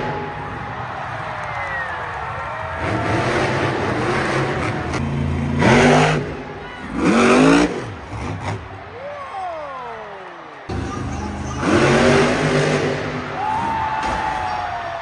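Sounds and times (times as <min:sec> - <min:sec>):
truck engine revving hard: 0:02.7 - 0:08.7, 0:10.7 - 0:13.7.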